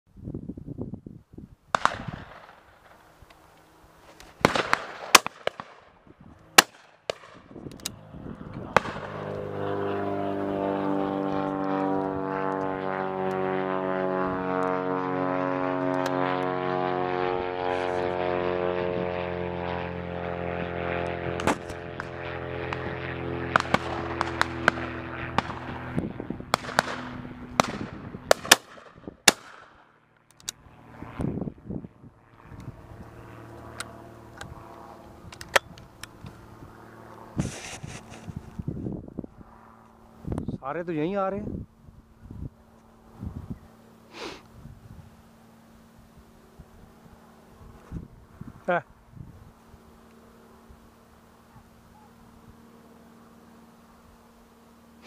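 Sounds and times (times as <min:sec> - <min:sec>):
propeller aircraft engine drone: 0:00.1 - 0:55.0
shotgun shots: 0:01.7 - 0:02.7, 0:04.4 - 0:05.9, 0:06.6 - 0:07.5, 0:08.7 - 0:09.2, 0:23.5 - 0:25.8, 0:26.5 - 0:29.9.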